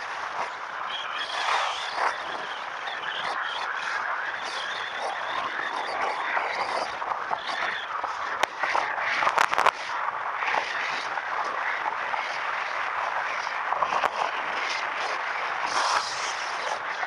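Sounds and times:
crackling clicks: 0:00.0 - 0:17.0
wind rushing over microphone: 0:00.0 - 0:17.0.

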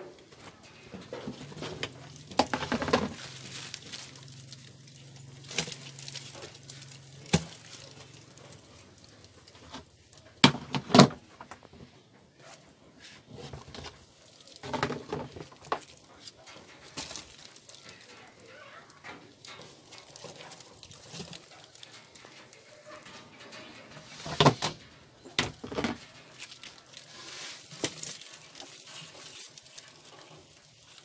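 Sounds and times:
plastic rustling: 0:00.0 - 0:31.0
plastic pots knocking: 0:01.0 - 0:03.2.

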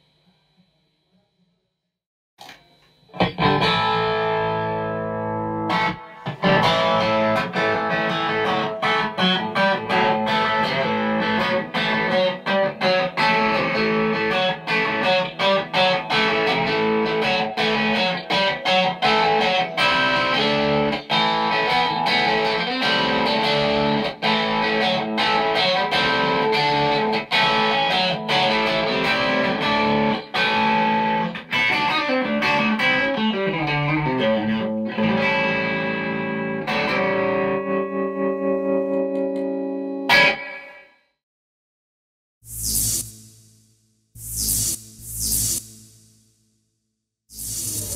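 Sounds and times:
electric guitar playing: 0:03.1 - 0:40.8.

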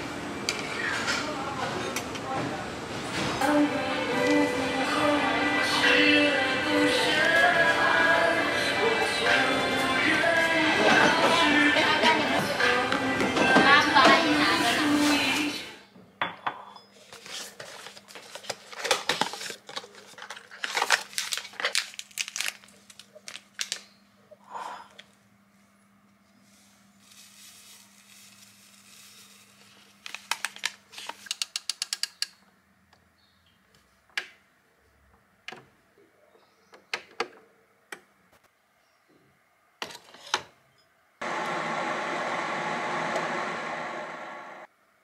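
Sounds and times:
paper sachet crinkling: 0:17.1 - 0:23.9, 0:27.0 - 0:31.4.

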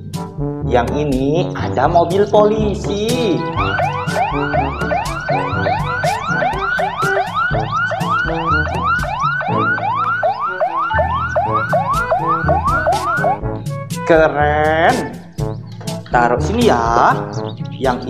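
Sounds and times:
toy electronic siren: 0:03.4 - 0:13.4.

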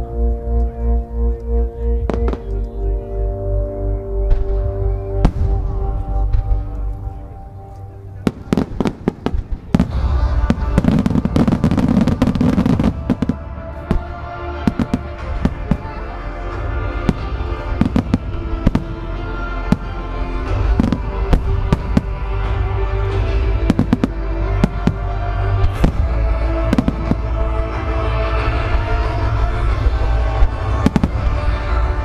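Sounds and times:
deep rumble: 0:00.0 - 0:32.0
music with long held tones: 0:00.0 - 0:32.0
fireworks cracking: 0:08.1 - 0:32.0.

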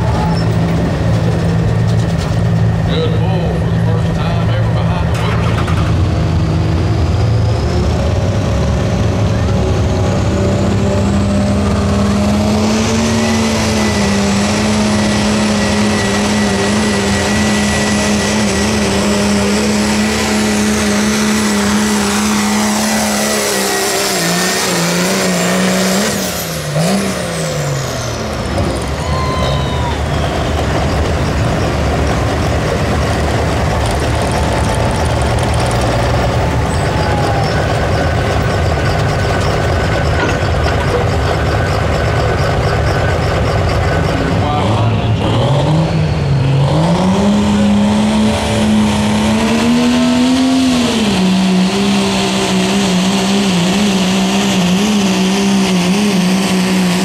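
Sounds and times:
diesel truck engine at full throttle: 0:00.0 - 0:57.0
turbo whistle: 0:29.0 - 0:30.9.

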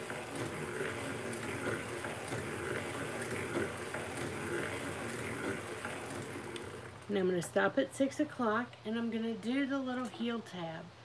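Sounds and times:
knitting machine needles clattering: 0:00.0 - 0:07.1.

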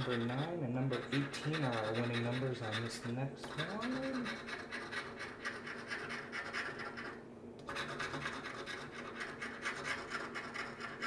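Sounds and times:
scratching lottery ticket: 0:00.0 - 0:11.0.

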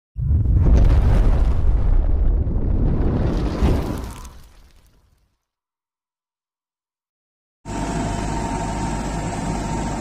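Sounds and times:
low rumbling blast: 0:00.2 - 0:04.3.

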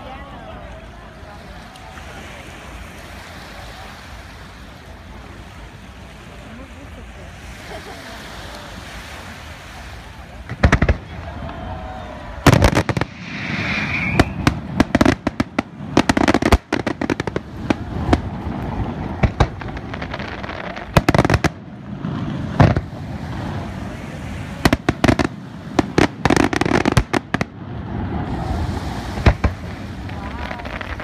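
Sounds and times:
fireworks bangs: 0:10.3 - 0:31.0.

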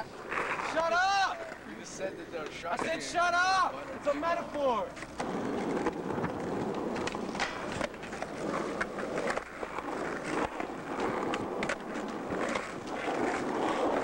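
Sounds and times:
skateboard wheels rolling on asphalt: 0:00.0 - 0:14.0
skateboard clacks: 0:04.4 - 0:14.0.

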